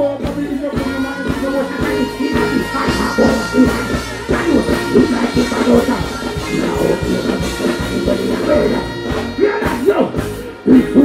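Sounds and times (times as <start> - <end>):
loud dancehall music: 0.0 - 11.0
person chanting into a microphone: 0.7 - 9.1.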